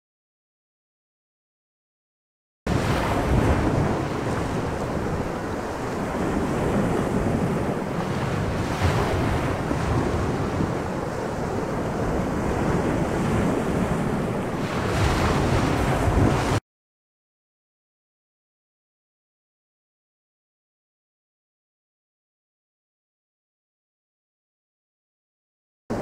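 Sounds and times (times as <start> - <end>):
sea waves: 2.7 - 16.6
wind rushing: 2.7 - 16.6.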